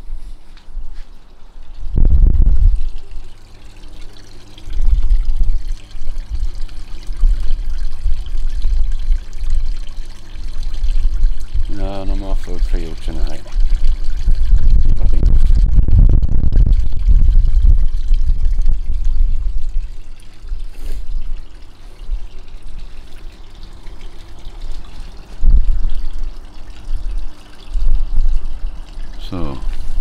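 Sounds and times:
water pouring into a pond: 1.7s - 30.0s
low rumbling on microphone: 1.8s - 3.3s, 4.6s - 9.8s, 10.6s - 22.8s, 25.3s - 30.0s.

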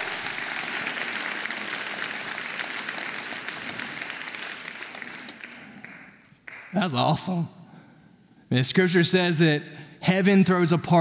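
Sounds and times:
congregation applauding: 0.0s - 7.0s.

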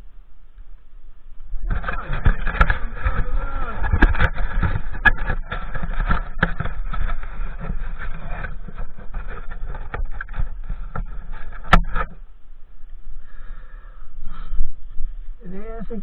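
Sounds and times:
wind buffeting microphone: 1.4s - 13.2s.

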